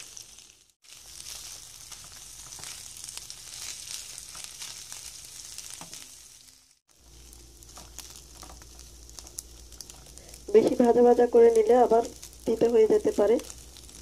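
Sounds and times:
fish sizzling in oil: 0.0 - 14.0
wooden spatula clicks and scrapes: 7.1 - 10.8.

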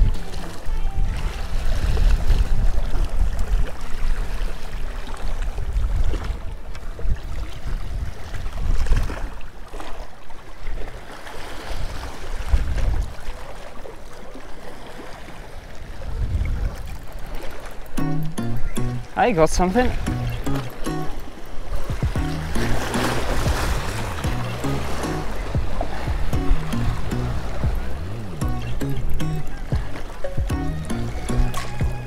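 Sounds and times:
wind rumbling on microphone: 0.0 - 9.6, 11.6 - 13.5, 15.4 - 17.5, 19.8 - 32.0
small waves washing on rocks: 0.1 - 17.9, 21.2 - 26.4.

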